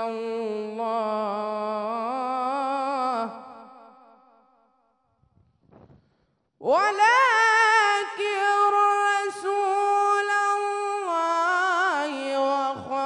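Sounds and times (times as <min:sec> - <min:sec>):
man chanting into a microphone: 0:00.0 - 0:04.0, 0:06.6 - 0:13.0
man breathing: 0:05.8 - 0:06.6.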